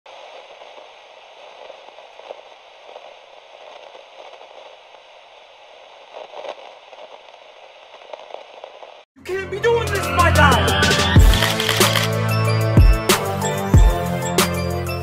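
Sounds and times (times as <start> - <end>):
static hiss: 0.1 - 9.0
static crackles: 0.1 - 9.1, 11.3 - 12.1.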